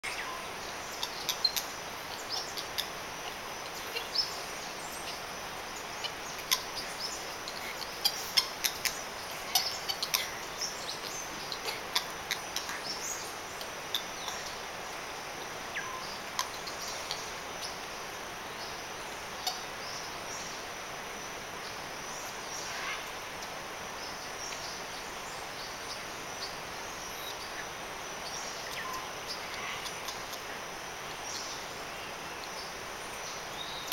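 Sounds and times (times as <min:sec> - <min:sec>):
steady insect drone: 0:00.0 - 0:33.9
bird chirps and clicks: 0:13.6 - 0:14.6, 0:28.7 - 0:30.4.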